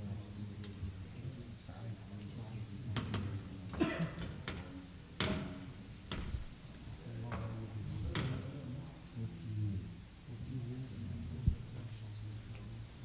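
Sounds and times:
furniture knocking and clicking: 3.0s - 6.6s.

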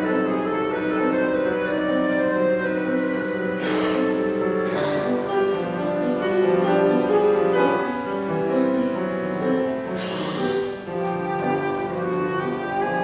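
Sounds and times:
flute playing slow melody: 0.0s - 5.6s, 10.9s - 13.0s
piano accompaniment: 0.0s - 13.0s.

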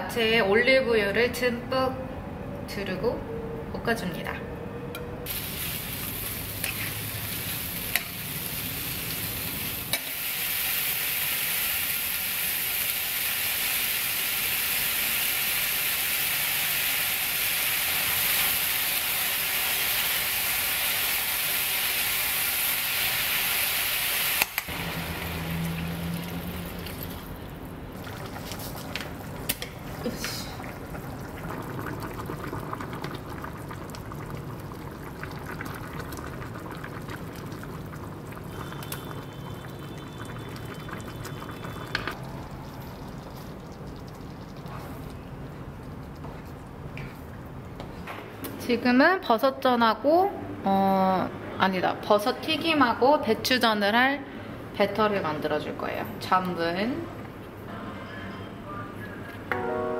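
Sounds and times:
vegetables sizzling in a pan: 5.3s - 27.1s
liquid bubbling: 24.7s - 47.8s.

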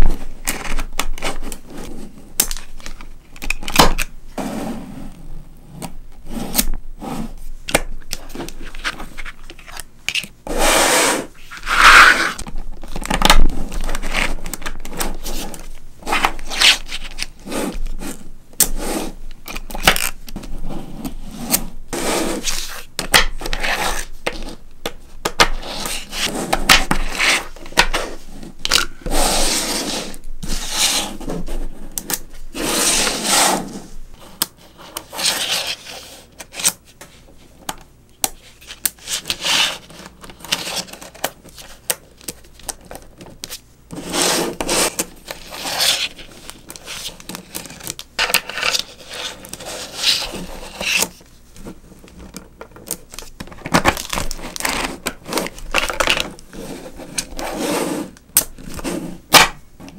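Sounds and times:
magnetic balls scraping on tabletop: 10.5s - 12.4s, 25.6s - 32.0s.

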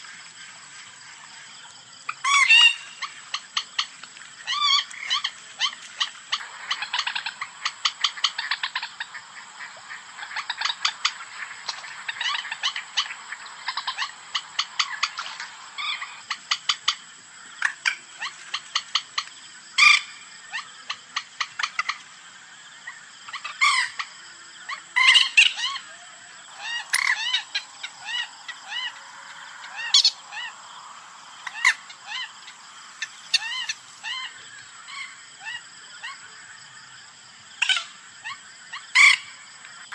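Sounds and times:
moorhen calls: 24.7s - 36.2s.

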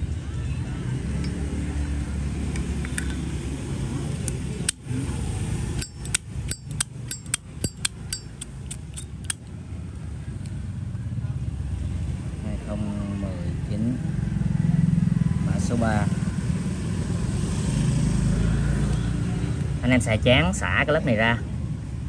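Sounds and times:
low steady rumble: 2.9s - 10.8s
lighter lid clicking: 5.8s - 9.4s.

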